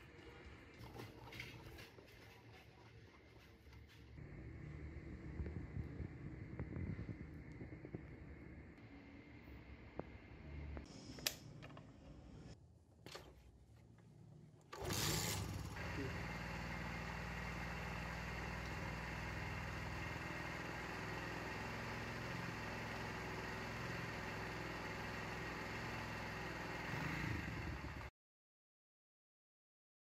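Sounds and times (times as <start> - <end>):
motorcycle kick-start: 14.7 - 16.2.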